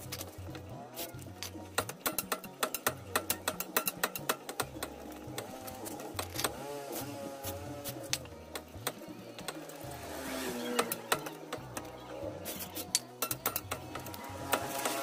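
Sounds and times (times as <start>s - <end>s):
metal stand clicking and clunking: 0.0s - 6.6s, 10.7s - 15.0s
low background music: 0.0s - 15.0s.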